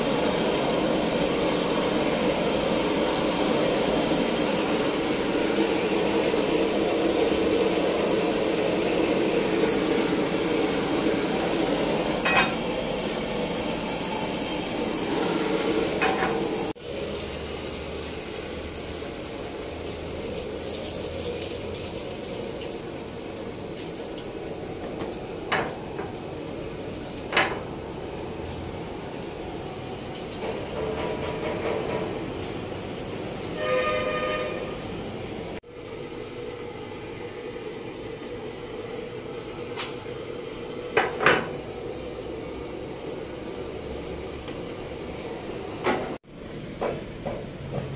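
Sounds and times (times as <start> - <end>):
food frying in pan: 0.0 - 31.6
gas burner flame rushing: 0.0 - 35.7.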